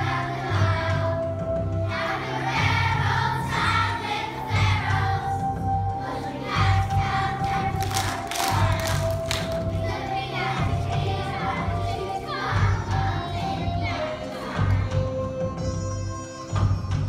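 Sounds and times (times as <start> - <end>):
children singing together: 0.0 - 15.6.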